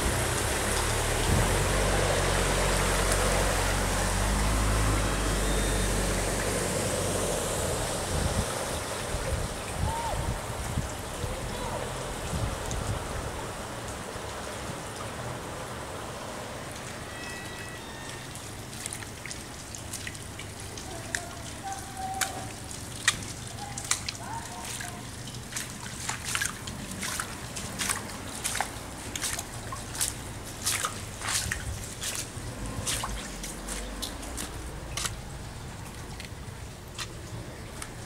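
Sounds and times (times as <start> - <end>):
water dripping into water: 0.0 - 6.7, 8.5 - 13.1, 16.6 - 38.0.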